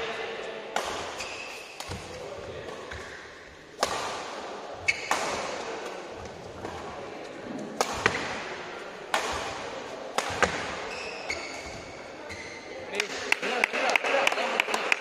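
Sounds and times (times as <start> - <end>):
rackets hitting shuttlecock: 0.7 - 12.4.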